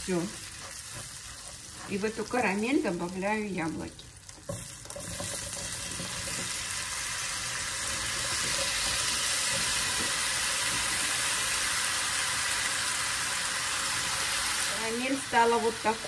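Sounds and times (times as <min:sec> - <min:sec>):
apples sizzling in a frying pan: 0:00.0 - 0:16.0.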